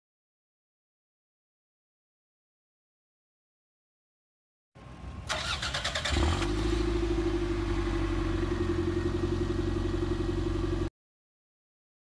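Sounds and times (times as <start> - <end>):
car engine idling: 4.8 - 10.9
engine starter cranking: 5.3 - 6.7.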